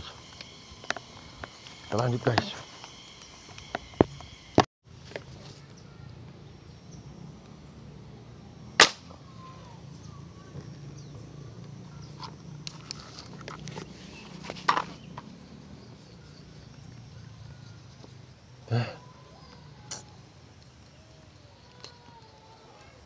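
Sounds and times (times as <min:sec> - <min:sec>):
air gun shot: 0:08.8 - 0:09.1.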